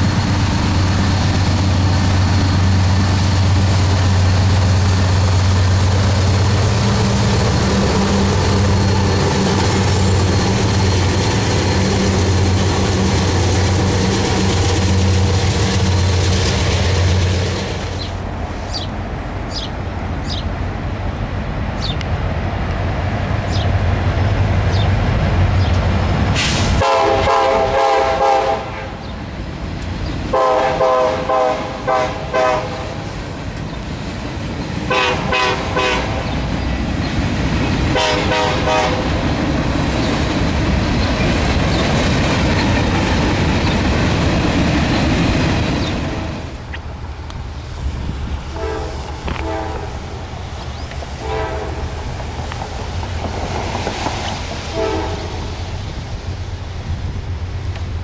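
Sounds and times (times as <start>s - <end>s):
train wheels rumbling: 0.0s - 58.0s
train air horn blasts: 26.4s - 29.0s, 30.3s - 33.0s, 34.9s - 36.3s, 37.9s - 39.1s, 48.5s - 50.0s, 51.2s - 52.1s, 54.6s - 55.6s.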